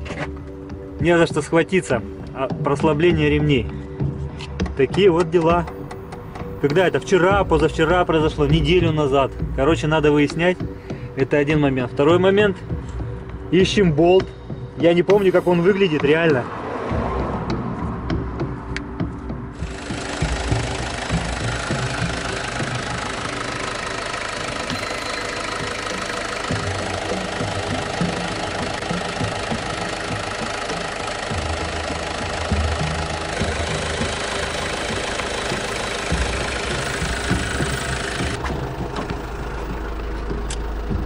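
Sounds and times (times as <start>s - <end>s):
diesel engine idling: 5.6s - 13.5s, 19.5s - 41.0s.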